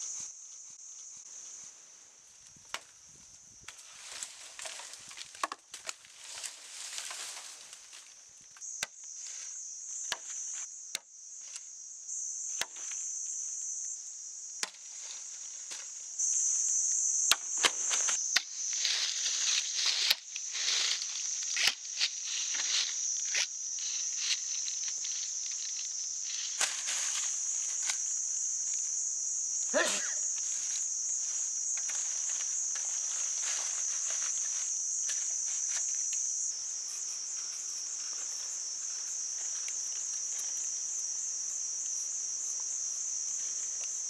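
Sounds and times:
insects buzzing: 0.0 - 44.0
dry leaves rustling: 3.8 - 8.1, 17.9 - 28.1.

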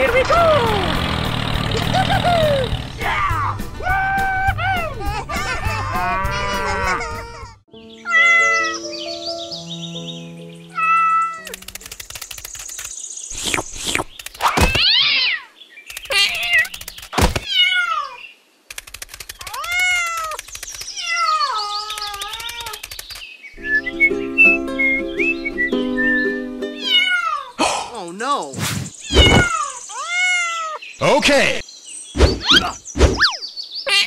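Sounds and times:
cat meowing: 8.1 - 8.8, 10.7 - 11.5, 26.8 - 27.5, 29.0 - 30.8.

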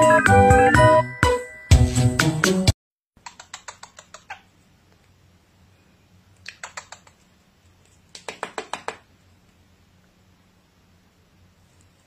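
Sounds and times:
cockatiel clicking: 3.2 - 4.4, 6.4 - 7.2, 8.1 - 9.1.

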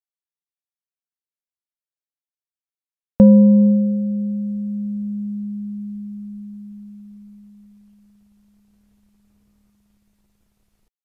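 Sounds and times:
low bell ringing: 3.2 - 9.5.

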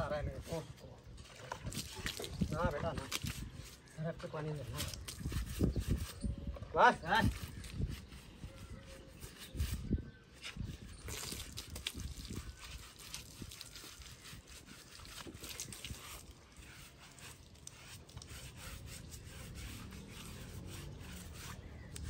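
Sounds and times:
wet rubbing strokes: 0.0 - 6.4, 7.1 - 22.0.

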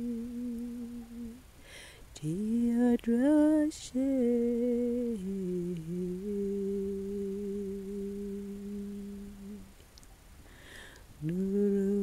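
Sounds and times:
person humming: 0.0 - 1.4, 4.0 - 9.7, 11.2 - 12.0
person breathing in: 1.6 - 2.1, 10.5 - 11.1.

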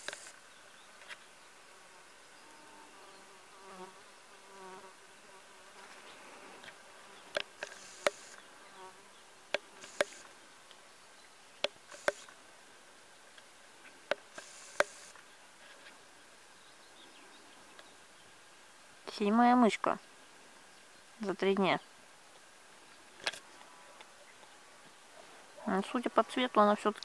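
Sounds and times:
fly buzzing: 0.0 - 0.4, 2.4 - 10.3, 11.9 - 12.3, 14.3 - 15.2.

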